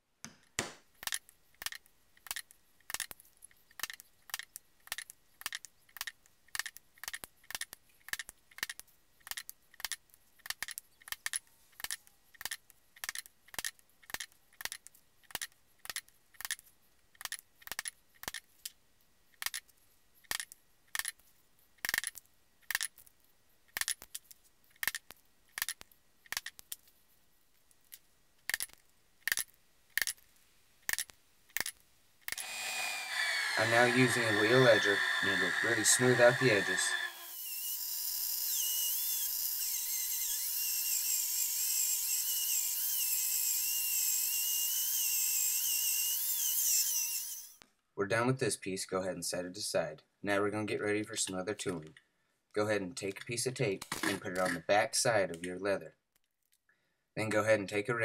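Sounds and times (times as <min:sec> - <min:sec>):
mallet striking hole punch: 0:00.3 - 0:00.8.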